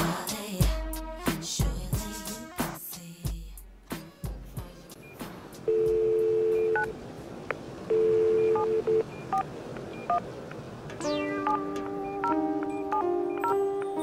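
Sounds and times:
two-note telephone beeps: 5.1 - 6.9, 7.9 - 10.2, 11.0 - 14.0
touch-tone keypress beeps: 5.7 - 6.9, 7.9 - 10.2, 11.4 - 14.0.

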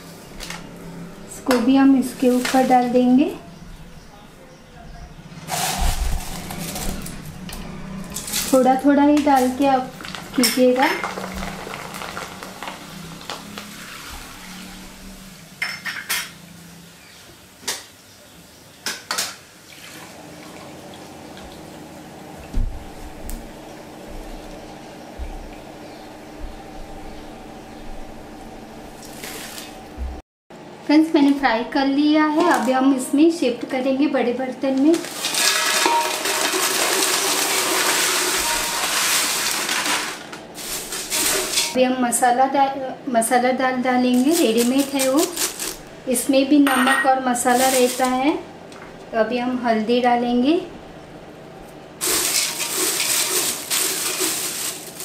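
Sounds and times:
dry flakes poured into metal pot: 5.5 - 7.2, 8.0 - 14.9, 34.9 - 41.8, 47.4 - 48.2, 52.0 - 55.0
metal strainer clinking against pan: 35.4 - 36.8.

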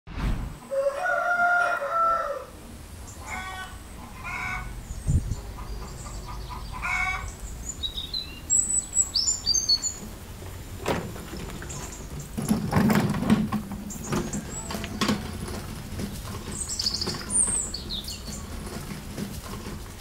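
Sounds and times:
rooster crowing: 0.6 - 2.6
small birds chirping: 3.0 - 10.4, 11.2 - 12.6, 13.7 - 20.0
short chicken calls: 3.2 - 4.7.

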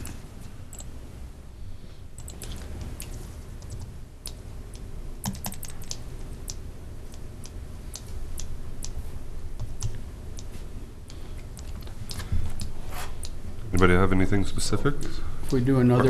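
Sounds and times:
low room rumble: 0.0 - 16.0
keyboard typing: 2.2 - 9.0.

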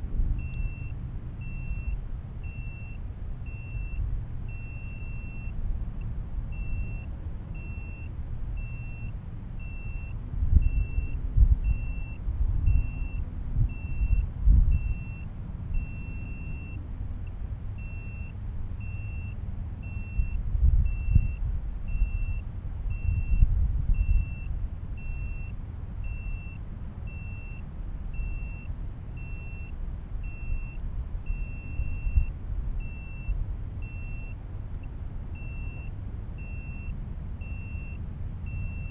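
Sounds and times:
wind buffeting microphone: 10.3 - 15.0, 20.3 - 21.9, 22.8 - 24.8.

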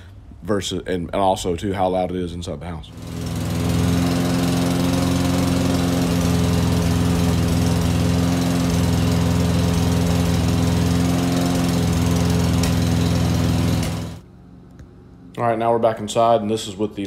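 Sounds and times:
lawn mower engine running: 2.9 - 14.3.

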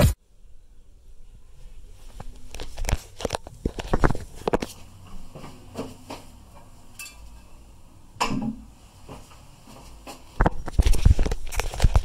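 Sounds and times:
thumps and rubbing on microphone: 2.0 - 4.8, 9.1 - 12.0.

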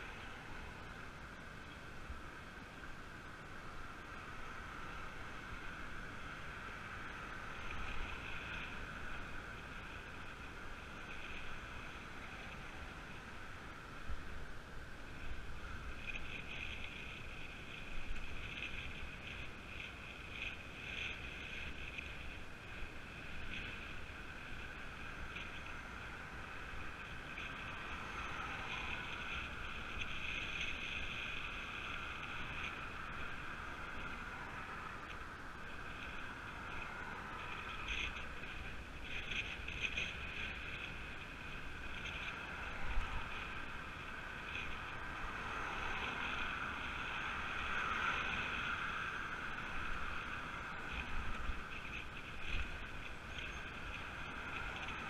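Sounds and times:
bicycle road rush: 0.0 - 55.0
wind rush: 4.1 - 55.0.

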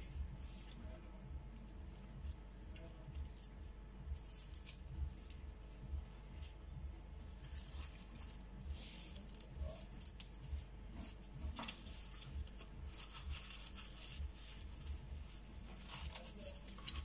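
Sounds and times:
cling film crinkling: 0.1 - 17.0.

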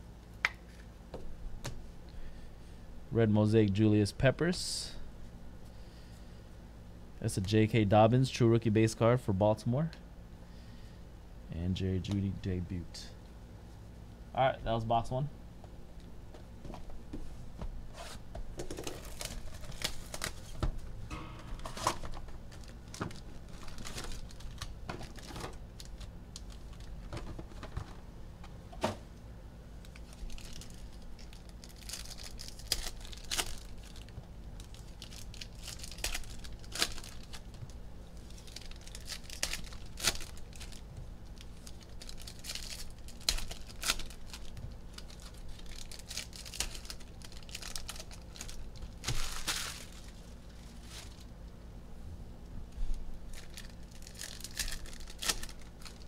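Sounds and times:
foil packs tearing and crinkling: 18.7 - 20.6, 21.6 - 27.7, 29.9 - 51.3, 53.3 - 56.0.

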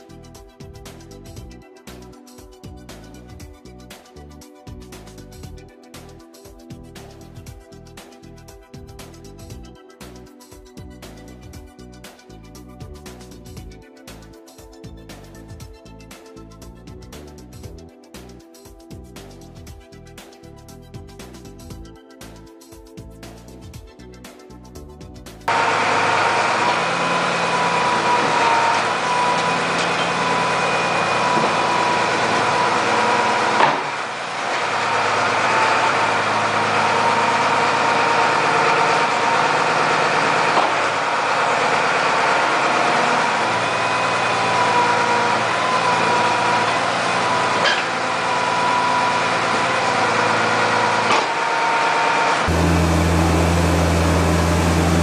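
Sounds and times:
scraper blade whine: 25.5 - 37.6
tractor engine running: 25.5 - 55.0.

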